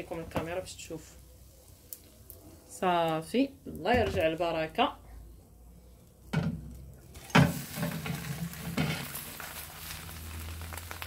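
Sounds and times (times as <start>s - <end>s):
frying pan clattering: 6.4s - 11.0s
food sizzling in oil: 7.0s - 11.0s.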